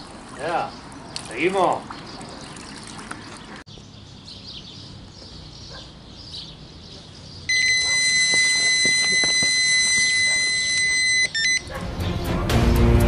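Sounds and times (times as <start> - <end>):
bite alarm continuous beep: 7.5 - 11.7.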